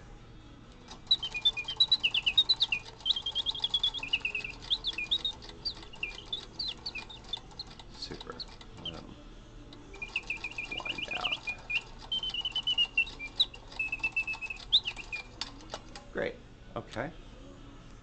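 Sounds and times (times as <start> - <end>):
mechanical bird whistle warbling: 0.9 - 9.1, 9.9 - 15.8
faint clockwork ticking: 1.0 - 9.1, 9.7 - 16.0.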